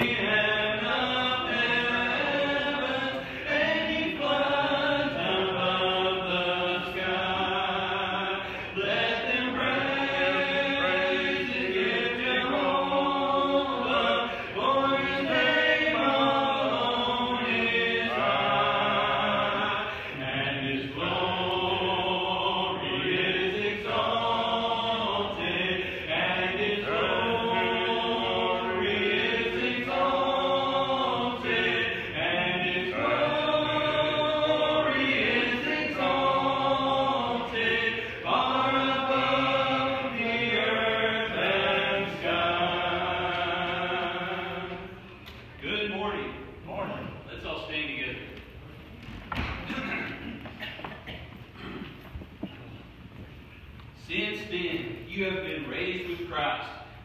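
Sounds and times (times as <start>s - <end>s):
group singing a hymn: 0.0s - 46.4s.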